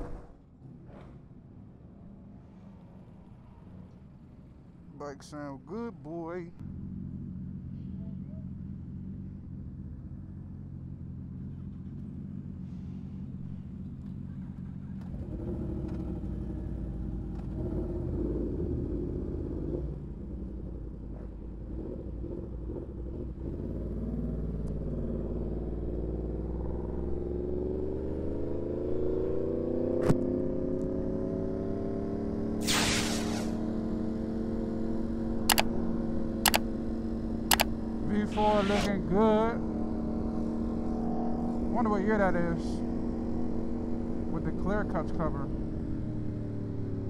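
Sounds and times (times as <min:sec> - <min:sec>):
motorcycle engines idling: 0:05.7 - 0:17.6
motorcycle engine revving: 0:06.6 - 0:47.0
sharp click: 0:37.5 - 0:37.7.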